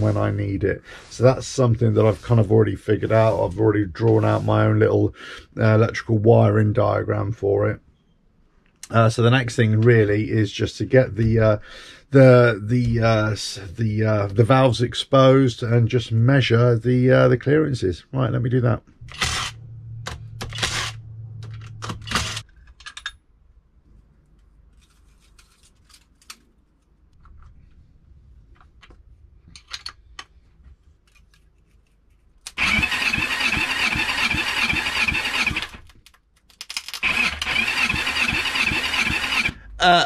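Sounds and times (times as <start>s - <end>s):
cordless driver whirring: 19.0s - 22.4s, 32.5s - 36.0s, 37.0s - 39.7s
engine cranking by electric starter: 19.0s - 22.4s, 32.5s - 35.9s, 37.0s - 39.7s.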